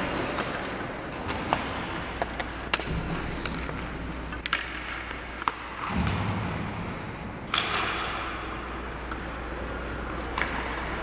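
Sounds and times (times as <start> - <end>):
skates scraping on ice: 0.0 - 5.8
hockey sticks and pucks clacking: 0.0 - 11.0.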